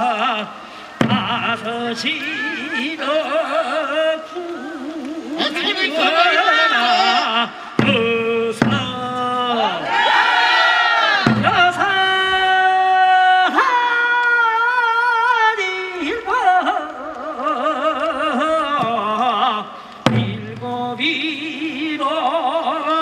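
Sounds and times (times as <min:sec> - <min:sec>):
solo voice singing folk song: 0:00.0 - 0:09.8, 0:11.3 - 0:23.0
sharp drum beat: 0:01.0 - 0:02.9, 0:07.8 - 0:09.6, 0:11.1 - 0:12.4, 0:20.1 - 0:21.3.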